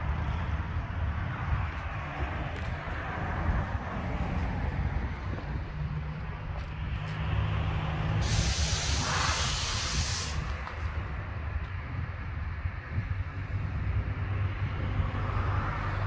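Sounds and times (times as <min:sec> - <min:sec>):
engine hum: 0:00.0 - 0:16.0
road traffic rumble: 0:00.0 - 0:16.0
loud hiss: 0:08.2 - 0:10.8.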